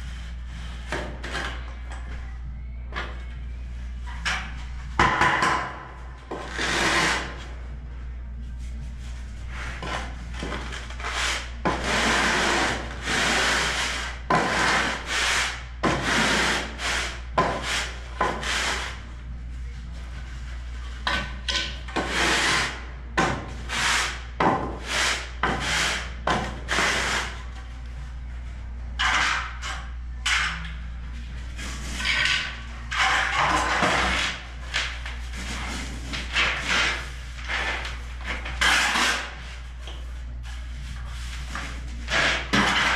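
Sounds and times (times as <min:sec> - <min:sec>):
low hum: 0:00.0 - 0:11.7, 0:18.9 - 0:22.0, 0:27.2 - 0:42.9
float scraping mortar: 0:41.6 - 0:42.9.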